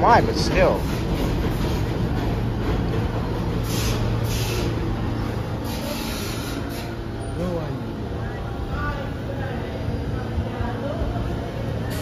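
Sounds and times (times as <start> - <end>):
subway train rumbling: 0.0 - 12.0
short hisses: 3.6 - 4.8.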